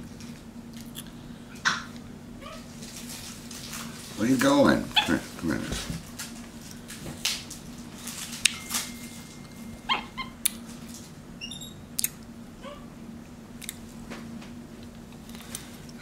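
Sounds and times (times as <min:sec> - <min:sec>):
monkey squeaking: 0:09.9 - 0:10.4.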